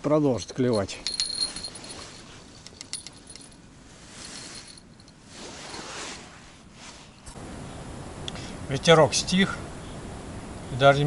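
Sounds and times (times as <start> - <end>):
small bell tinkling: 0.4 - 5.2.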